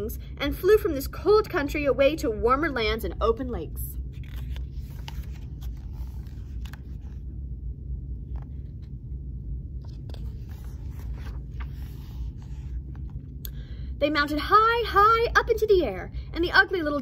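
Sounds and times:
low rumble: 3.9 - 14.4
book pages turning: 4.0 - 7.4, 8.2 - 13.4.

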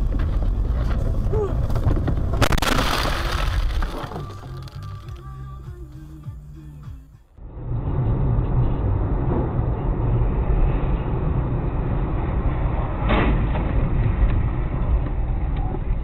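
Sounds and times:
car road and engine rumble: 0.0 - 16.0.

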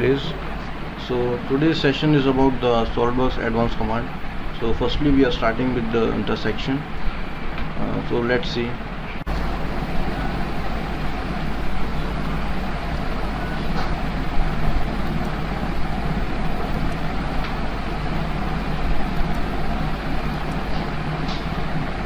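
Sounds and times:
speech: 0.0 - 0.4, 1.0 - 6.9, 7.8 - 8.8
low hum: 8.7 - 22.0.

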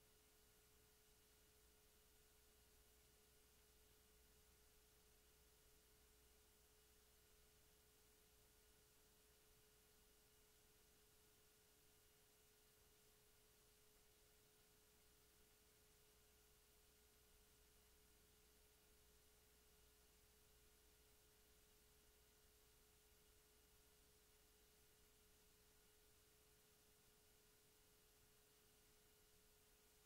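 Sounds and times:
faint hiss: 0.0 - 30.0.

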